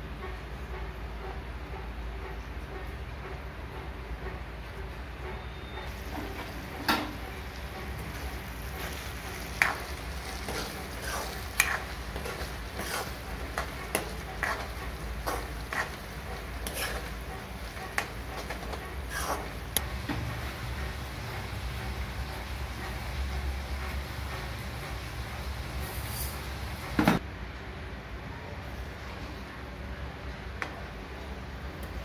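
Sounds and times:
gravy sizzling and bubbling: 5.9s - 27.0s.

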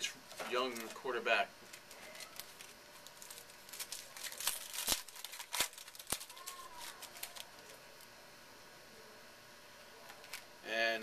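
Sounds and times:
wrapper crinkling and tearing: 0.3s - 7.8s.

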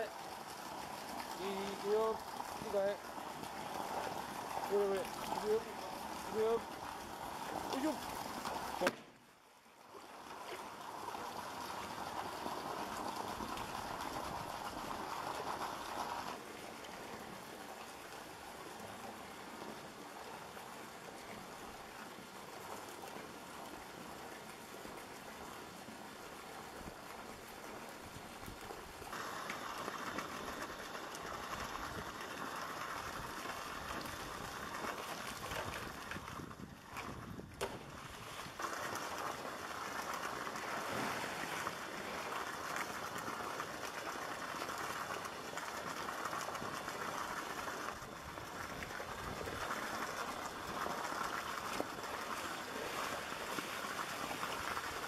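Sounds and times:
outdoor background hiss: 0.0s - 55.0s
running water: 0.0s - 55.0s.

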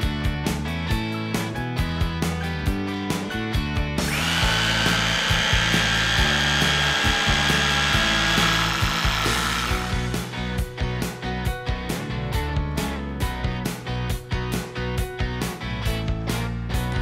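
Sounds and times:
rotary hammer drilling concrete: 4.0s - 10.3s.

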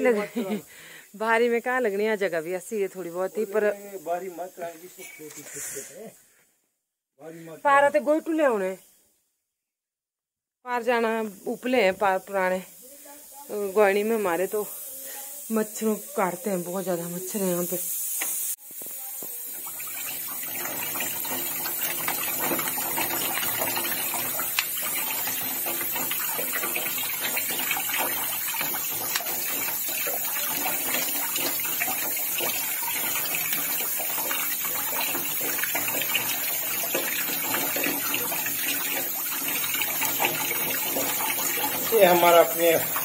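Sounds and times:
tap water splashing: 18.2s - 43.0s.

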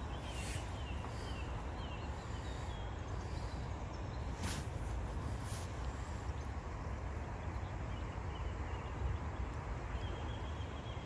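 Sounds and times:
bird chirping: 0.0s - 4.6s
wind rumbling on microphone: 0.0s - 11.0s.

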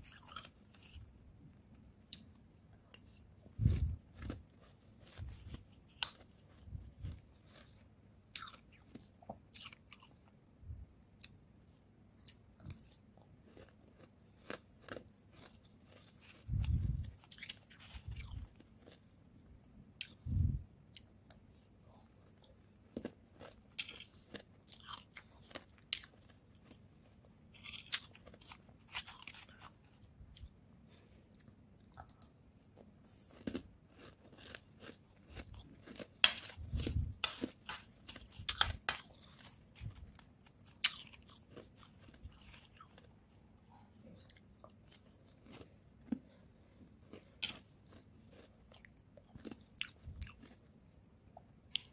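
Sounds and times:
frost crunching while chewed: 3.0s - 10.1s, 12.3s - 19.0s, 22.1s - 29.9s, 33.3s - 43.2s, 47.0s - 50.6s.

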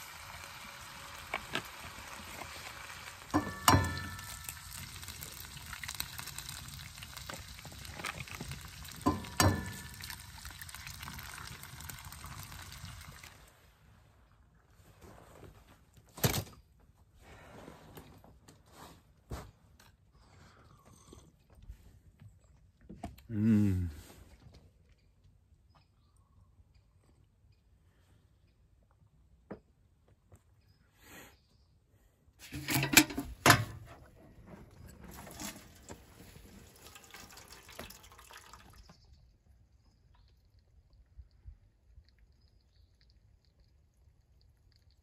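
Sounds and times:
water drips: 0.0s - 13.6s, 35.2s - 45.0s
water trickling into metal bucket: 0.0s - 13.7s, 32.4s - 45.0s
soft rustling and shuffling: 14.6s - 16.1s, 17.0s - 19.8s.

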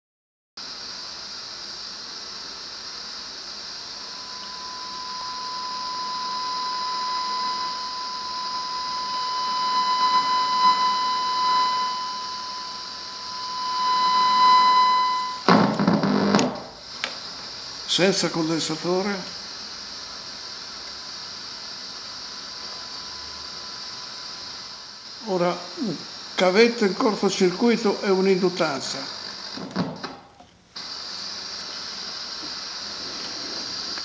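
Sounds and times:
hiss: 0.6s - 34.0s
steady whistling tone: 3.8s - 15.5s, 21.7s - 25.4s
loud crackle: 15.1s - 17.0s.

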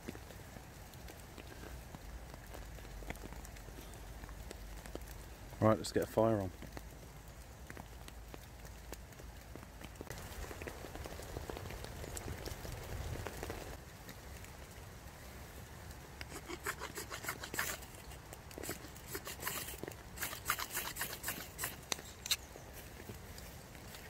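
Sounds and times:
ferro rod scraping: 16.2s - 22.5s.

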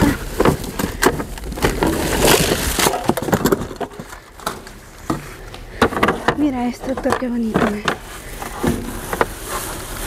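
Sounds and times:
boxes knocking and clattering: 0.0s - 9.5s
rustling and scraping of packages: 0.0s - 10.0s.

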